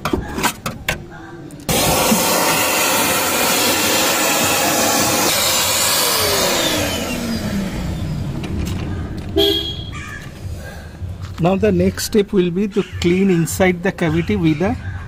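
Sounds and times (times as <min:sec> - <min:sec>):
vacuum cleaner running: 0:01.7 - 0:08.2.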